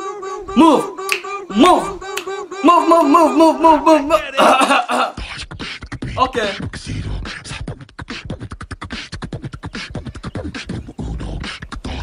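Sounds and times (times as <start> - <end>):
beatbox vocal percussion: 0.0 - 4.2, 5.0 - 12.0
person speaking: 0.5 - 5.2, 6.2 - 6.6.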